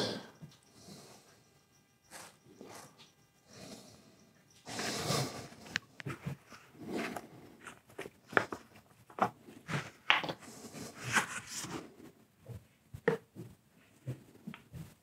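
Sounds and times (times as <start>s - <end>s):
plastic jugs clicking and knocking: 12.5s - 13.5s.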